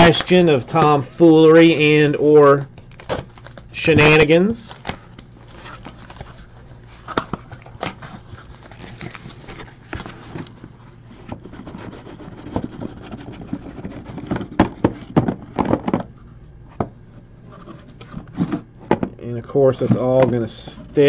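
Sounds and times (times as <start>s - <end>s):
cardboard scrapes and knocks: 11.2s - 16.1s.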